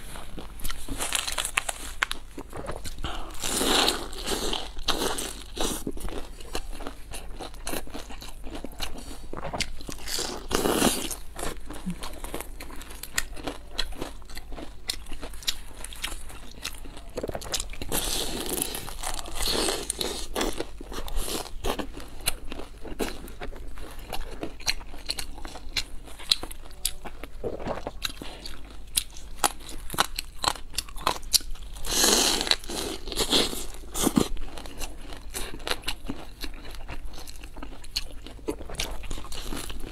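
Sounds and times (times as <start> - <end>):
crunchy biting and chewing: 0.0 - 39.9.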